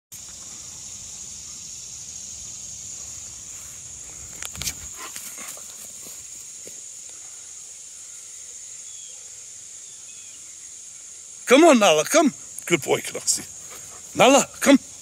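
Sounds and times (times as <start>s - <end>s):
steady high hiss: 0.1s - 15.0s.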